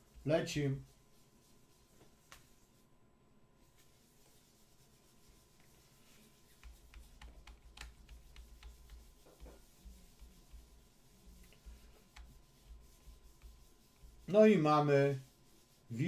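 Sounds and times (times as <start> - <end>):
faint clicks and taps: 6.4 - 13.6.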